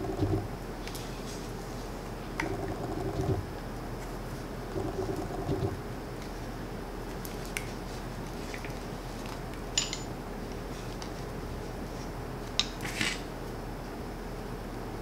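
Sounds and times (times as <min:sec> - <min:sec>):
low room hum: 0:00.0 - 0:15.0
metal pipe fittings clinking: 0:09.8 - 0:10.1.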